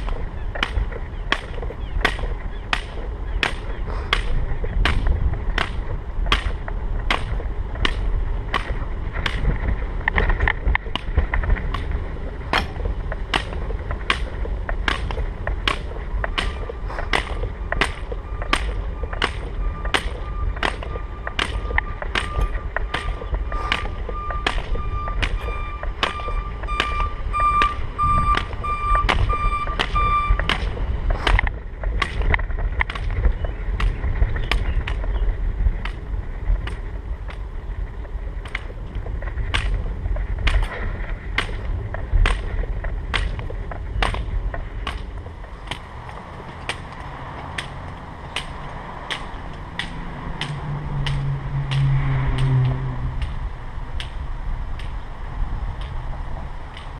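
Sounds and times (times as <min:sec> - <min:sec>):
hiking pole tips clicking on asphalt: 0:00.0 - 0:56.9
wheelchair wheels rumbling on pavement: 0:00.0 - 0:56.9
pulsing electronic beep: 0:18.2 - 0:30.5.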